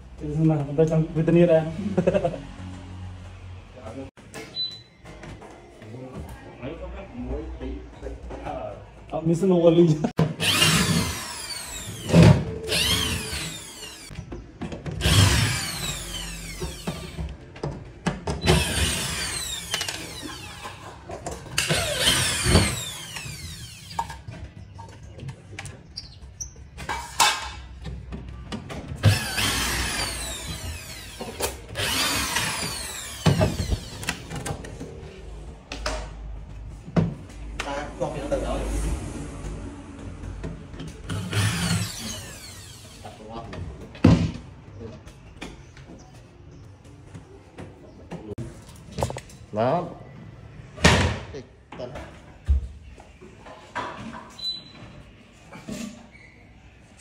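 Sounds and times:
cordless drill driving screws: 10.4 - 14.1, 15.0 - 17.2, 18.4 - 20.7, 21.6 - 24.0, 29.0 - 34.2, 41.1 - 43.1.

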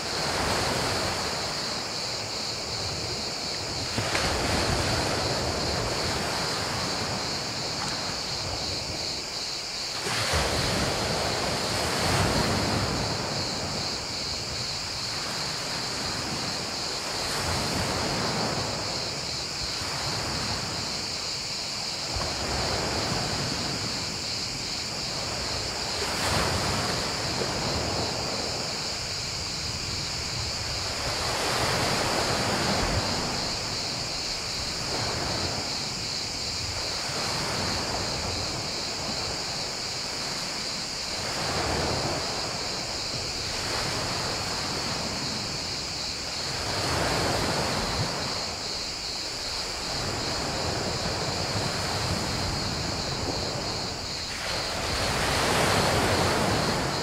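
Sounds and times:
crickets chirping: 0.0 - 57.0
waves washing onto pebble beach: 22.0 - 57.0.

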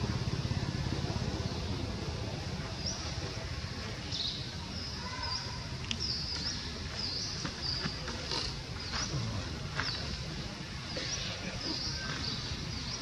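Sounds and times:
low steady rumble: 0.0 - 4.0.

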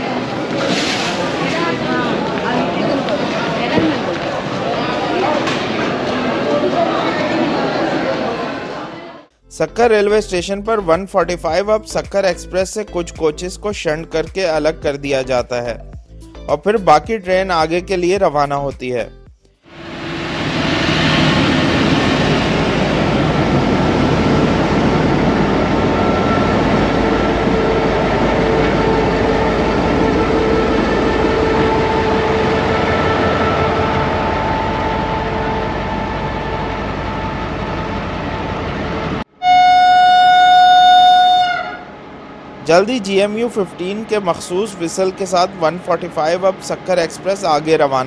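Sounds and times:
locomotive engine and rail rumble: 0.0 - 16.4, 19.6 - 48.0
locomotive horn blast: 25.7 - 37.4, 39.4 - 42.0.

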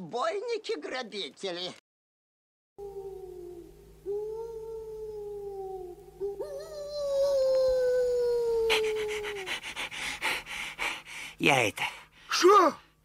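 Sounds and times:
cartoon wolf howling: 2.8 - 9.6.

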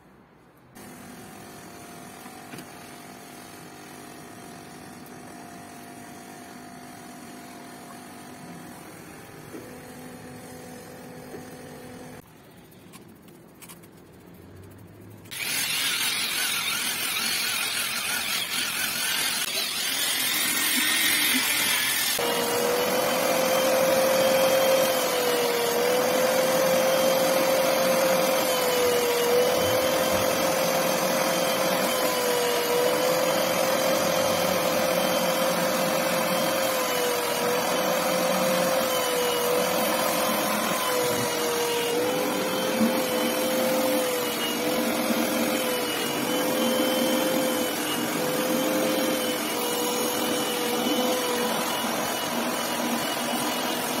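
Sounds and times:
suction motor whine: 15.3 - 54.0.

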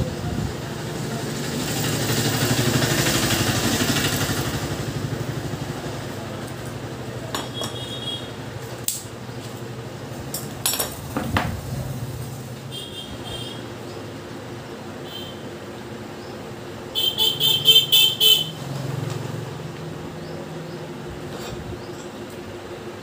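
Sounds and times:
motorcycle engine running: 0.0 - 8.6.

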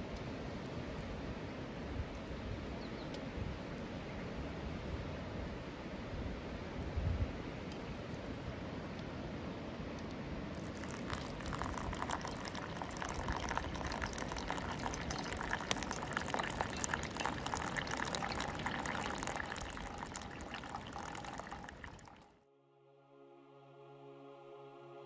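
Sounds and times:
coffee grounds crackling: 10.6 - 22.2
hot water pouring onto coffee grounds: 10.6 - 22.3.

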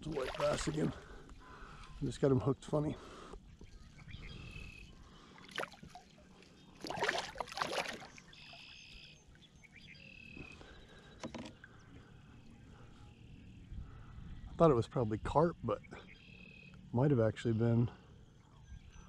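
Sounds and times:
fish splashing at water surface: 0.0 - 1.0, 5.4 - 6.0, 6.8 - 8.6.

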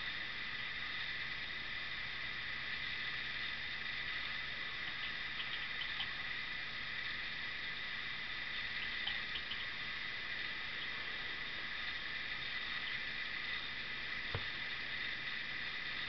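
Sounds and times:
low room tone hiss: 0.0 - 16.0
faint ticks: 4.9 - 6.2, 8.8 - 9.7.

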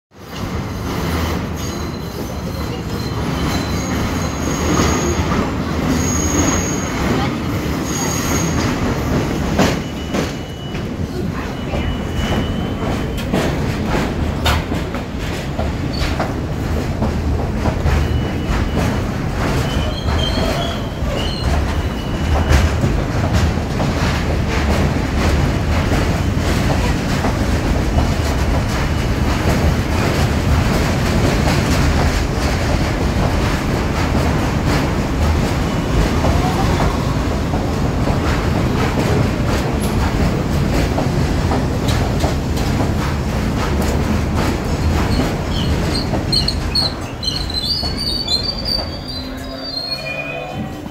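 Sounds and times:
subway wheels rumbling on rail: 0.1 - 50.9
high wheel squeals: 0.7 - 7.1, 7.8 - 8.8, 19.6 - 22.6, 45.5 - 50.9.

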